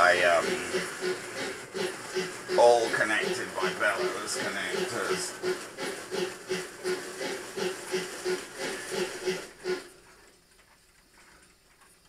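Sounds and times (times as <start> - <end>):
model steam locomotive chuffing: 0.0 - 10.3.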